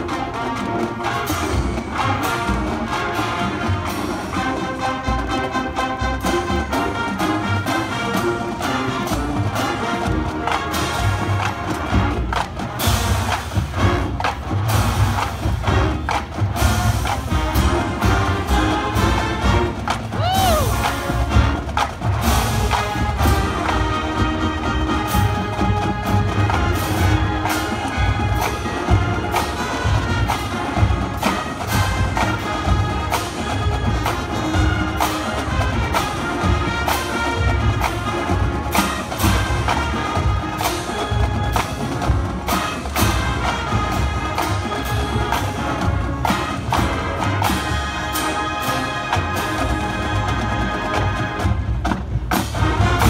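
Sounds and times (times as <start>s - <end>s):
marching band playing: 0.0s - 53.0s
steady drum beat: 0.0s - 53.0s.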